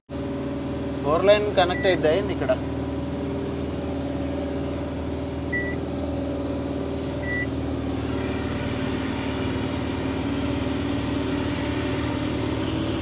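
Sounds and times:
truck diesel engine running: 0.1s - 13.0s
short high beeps: 5.5s - 5.8s, 7.2s - 7.5s.

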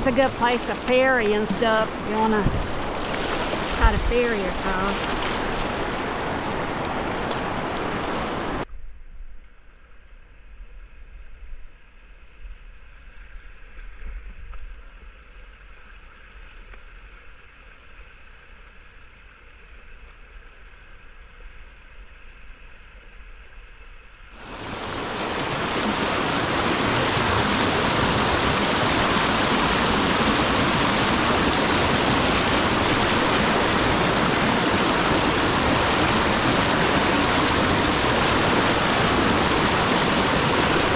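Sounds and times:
rushing whitewater splashing: 0.0s - 8.6s, 24.4s - 40.9s.

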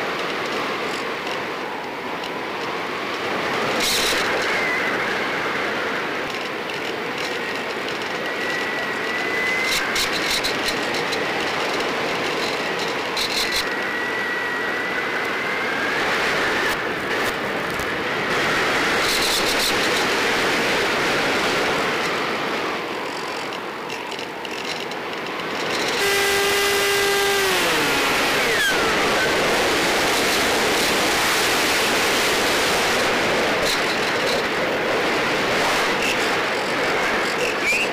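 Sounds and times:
crackle bursts: 23.3s - 34.6s
electric motor whine: 25.6s - 33.2s.

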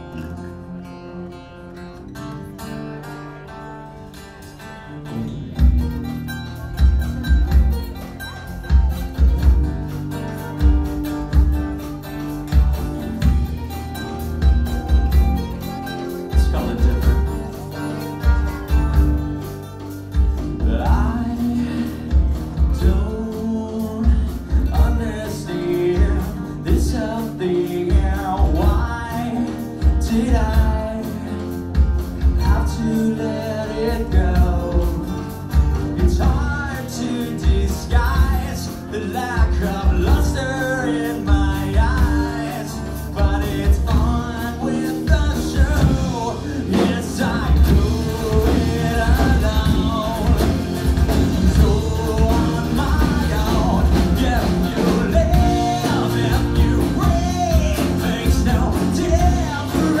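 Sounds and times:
acoustic guitars: 0.0s - 60.0s
man singing: 4.4s - 60.0s
drum kit beat: 5.2s - 60.0s
hand drums: 5.6s - 25.2s, 33.9s - 60.0s.

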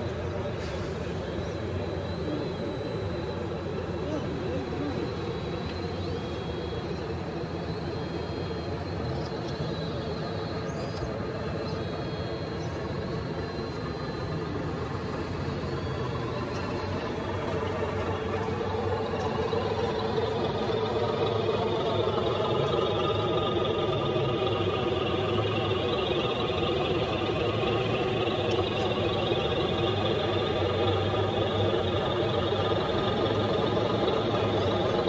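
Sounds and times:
electric motor and gear noise: 0.0s - 35.0s.

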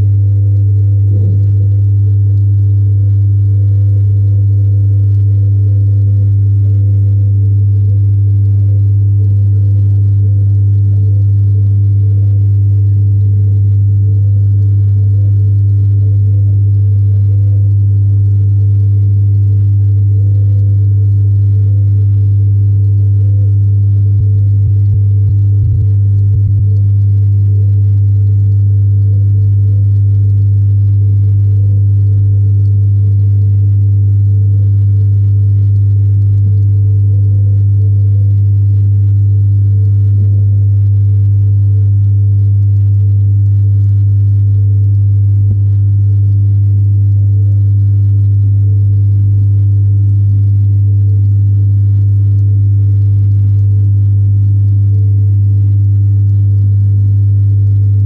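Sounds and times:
water pump humming: 0.0s - 41.0s, 42.0s - 45.6s, 47.6s - 48.4s, 52.0s - 52.5s.

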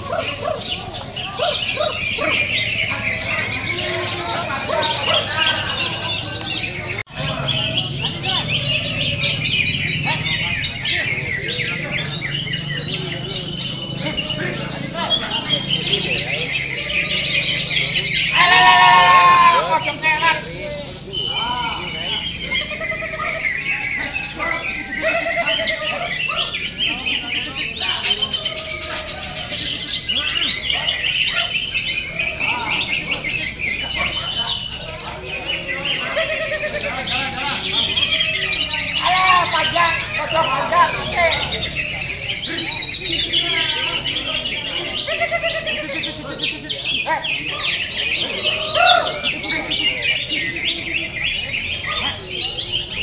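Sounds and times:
bird singing high chirps: 19.9s - 53.0s.

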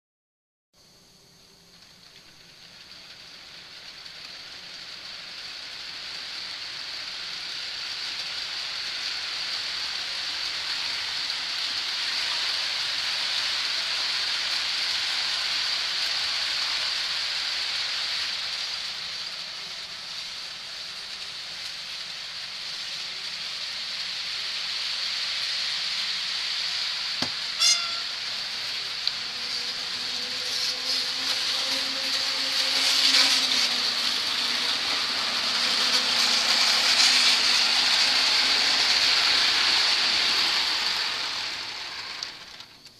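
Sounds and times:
model train whirring: 0.8s - 42.9s
brief squeak: 27.2s - 28.3s.

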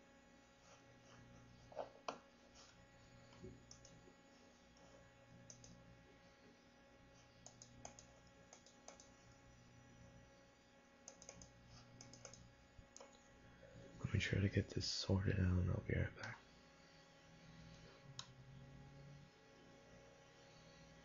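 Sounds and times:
computer mouse clicks: 3.2s - 4.0s, 5.4s - 5.8s, 7.4s - 9.2s, 11.0s - 13.3s, 17.7s - 18.4s.

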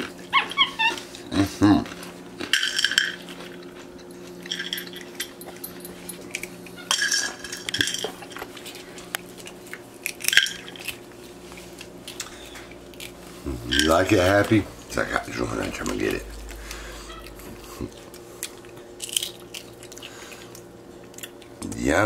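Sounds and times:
steady low hum: 1.0s - 22.0s.

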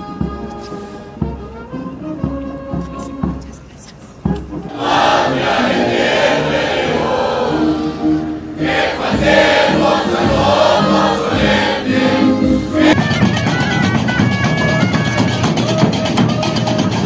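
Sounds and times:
group of voices singing: 4.7s - 13.0s
music with regular beat: 8.7s - 17.0s.

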